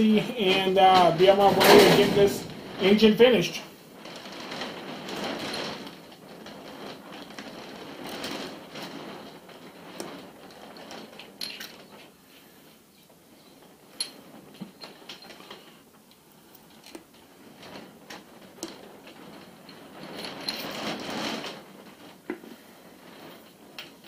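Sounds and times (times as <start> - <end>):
metal scraping and rubbing: 0.0 - 11.1.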